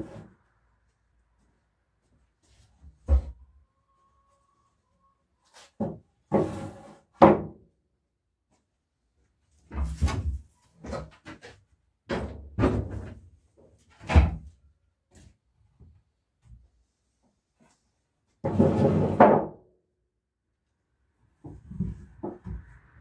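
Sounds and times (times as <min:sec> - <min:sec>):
wooden boards knocking: 0:07.2 - 0:07.6.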